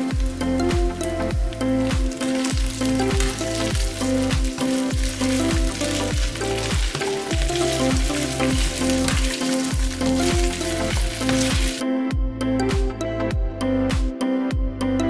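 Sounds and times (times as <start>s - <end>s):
vegetables sizzling in oil: 0.0s - 11.8s
background music with steady beat: 0.0s - 15.0s.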